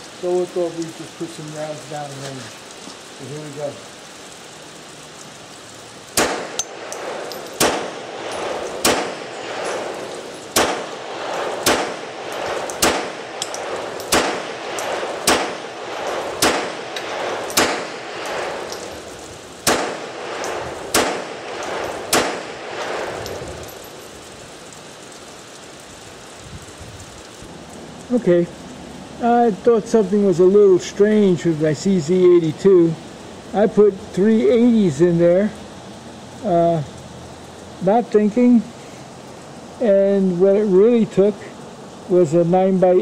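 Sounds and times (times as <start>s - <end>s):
pistol shots with echo: 6.2s - 19.0s, 19.6s - 23.4s.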